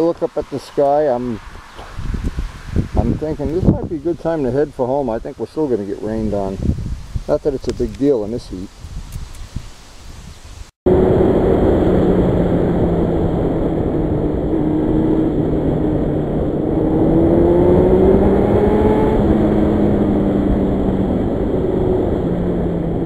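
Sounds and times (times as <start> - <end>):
motorcycle engine cruising: 0.0 - 5.2, 10.9 - 23.0
wind noise: 0.0 - 23.0.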